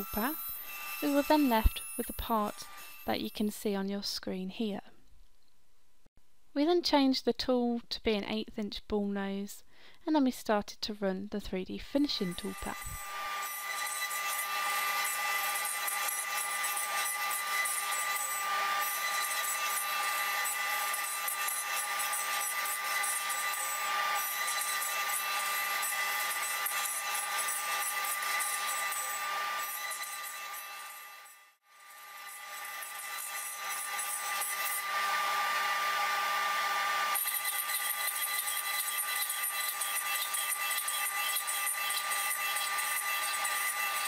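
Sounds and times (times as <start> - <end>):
router spindle whine: 0.0 - 3.3, 12.2 - 44.0
bit cutting wood hiss: 0.0 - 3.4.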